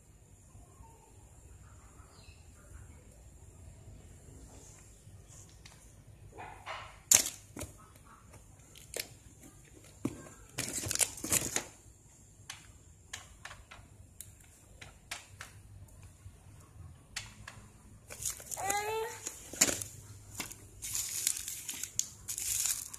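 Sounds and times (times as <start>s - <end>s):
foil packaging crinkling: 10.5s - 11.8s, 18.1s - 22.9s.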